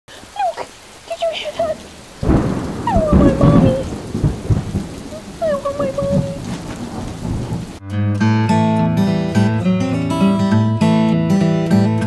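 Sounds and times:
whimpering cries: 0.1 - 3.9, 5.1 - 6.4
steady rain: 0.1 - 7.8
thunder clap and rumble: 1.2 - 7.8.

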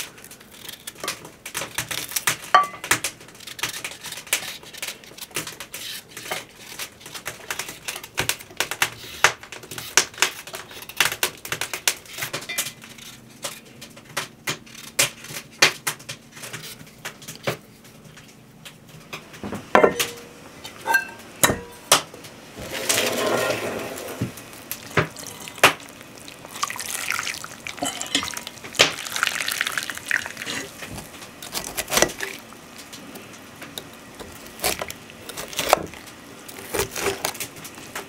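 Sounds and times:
water pouring from mug: 24.8 - 31.0
metal bowl clinks: 27.8 - 28.4
knife scraping carrot peel: 30.4 - 32.4, 34.2 - 37.5.

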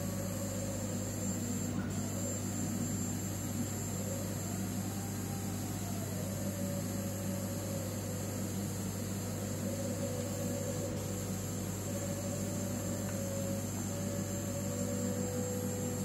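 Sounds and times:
steady electrical hum: 0.0 - 5.4.

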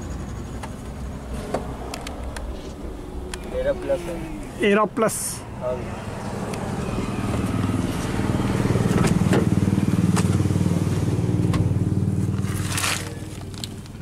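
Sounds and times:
engine running: 0.0 - 14.0
scraping rustle: 12.3 - 13.9.

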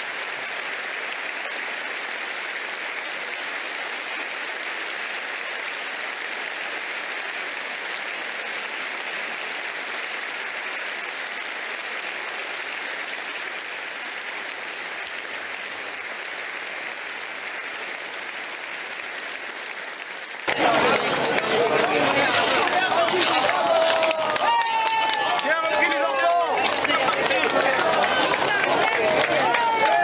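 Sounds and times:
crowd applauding: 0.0 - 30.0.

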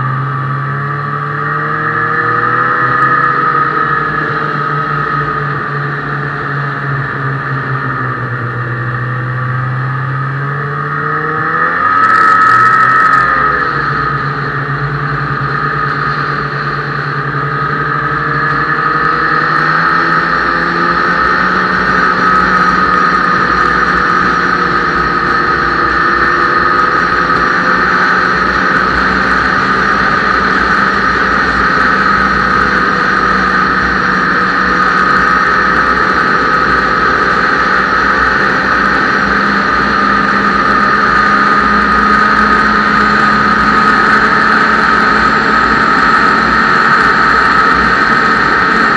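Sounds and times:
snowmobile engine running: 0.0 - 48.9.

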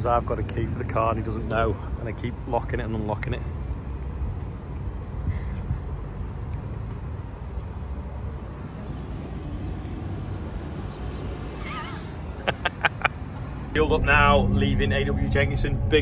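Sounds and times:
engine idling rumble: 13.7 - 16.0.

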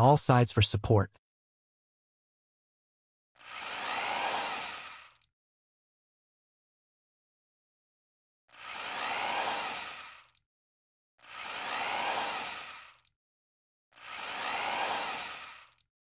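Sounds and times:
cordless drill driving screws: 3.4 - 5.3, 8.5 - 10.4, 11.2 - 13.1, 14.0 - 15.9.

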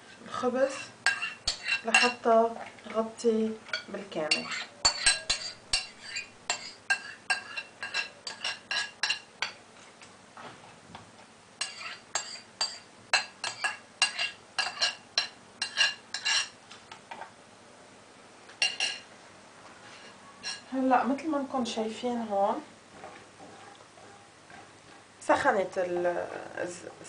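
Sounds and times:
spoon clinking against a bowl: 1.1 - 2.2, 3.7 - 9.6, 11.6 - 16.5, 18.6 - 19.0.

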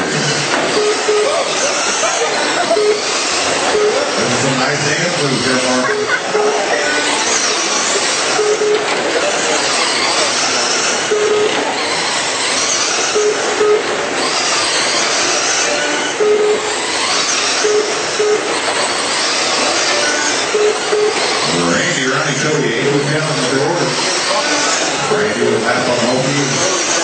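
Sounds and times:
rc car motors hissing: 0.0 - 5.8, 6.6 - 8.4, 9.0 - 22.6, 23.3 - 27.0
high whines of passing cars: 0.0 - 27.0
short beeps: 0.8 - 1.5, 2.7 - 4.4, 5.8 - 6.8, 8.3 - 8.9, 11.0 - 11.6, 13.1 - 13.9, 15.6 - 16.7, 17.6 - 18.6, 20.1 - 23.3.

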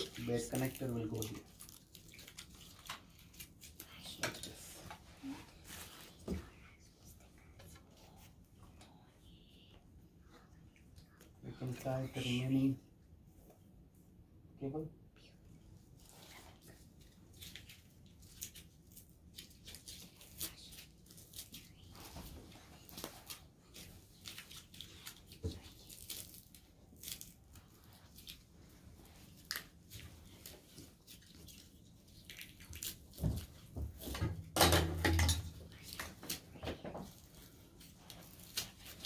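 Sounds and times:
plastic wrap rustling: 0.0 - 6.4, 35.7 - 39.0.

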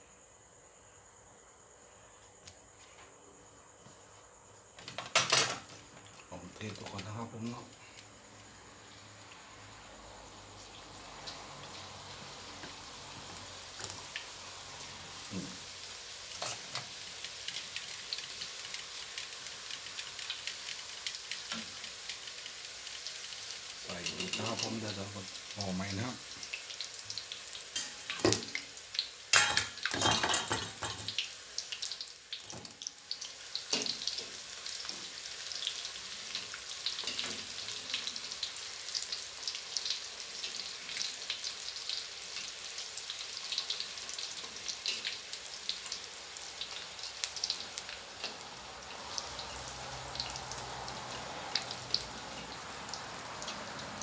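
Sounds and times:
deep-frying sizzle and pops: 4.7 - 54.0
clatters in a wok: 16.3 - 17.0, 23.8 - 24.8, 29.3 - 31.2.

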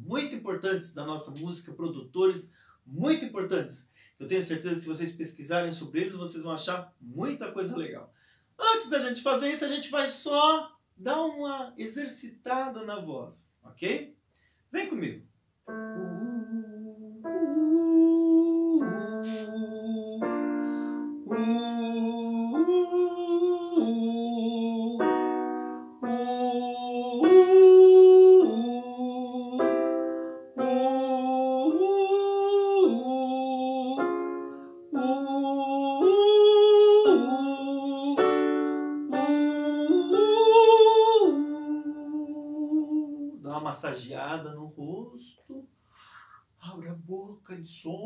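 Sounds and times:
electronic keyboard chords: 15.7 - 21.6, 25.0 - 26.6, 29.6 - 32.2, 34.0 - 35.0, 38.2 - 41.0
man singing vocal exercise: 16.0 - 25.4, 26.0 - 30.0, 30.6 - 48.0.

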